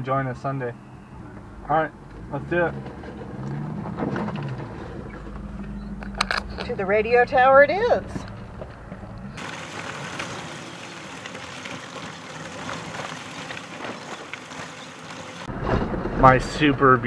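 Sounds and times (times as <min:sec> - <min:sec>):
wind and road rush: 0:00.0 - 0:17.0
low engine drone: 0:01.1 - 0:07.5, 0:08.2 - 0:15.5.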